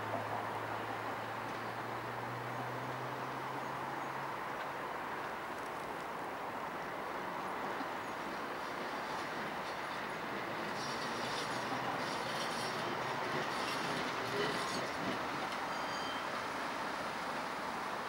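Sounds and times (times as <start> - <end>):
tram wheels rumbling on rails: 7.1 - 18.0
high-pitched wheel squeals: 10.8 - 12.9, 13.5 - 16.6.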